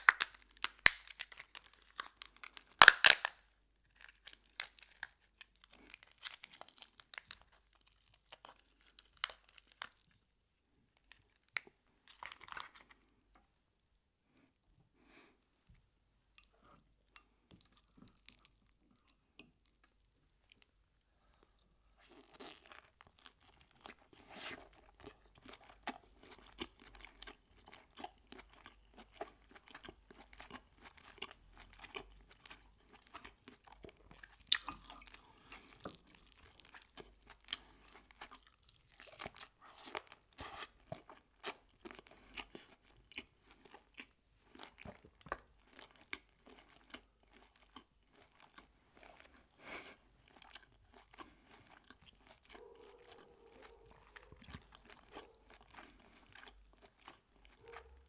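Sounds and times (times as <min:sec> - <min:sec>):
wet chewing and mouth smacks: 0:21.6 - 0:58.0.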